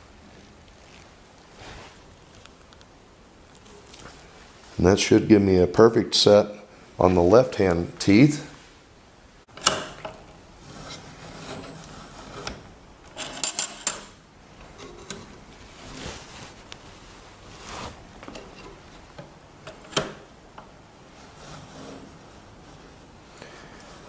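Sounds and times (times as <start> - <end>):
metal tool clicking and clinking: 13.1 - 14.2.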